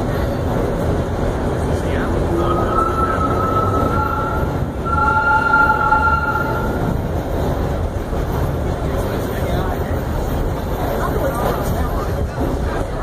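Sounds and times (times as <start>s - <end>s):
subway wheels rumbling on rail: 0.0s - 13.0s
high wheel squeal: 2.3s - 7.1s.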